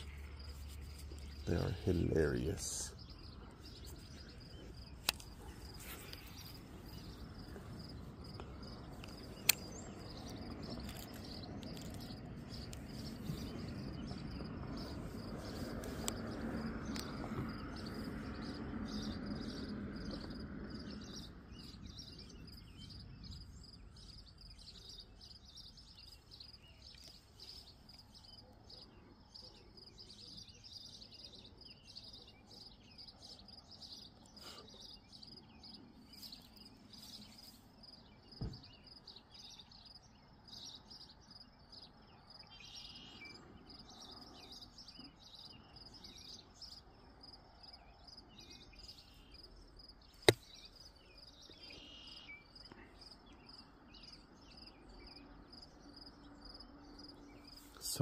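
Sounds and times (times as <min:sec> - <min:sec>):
bird chirps: 0:00.0 - 0:58.0
dull thump: 0:38.4 - 0:38.7.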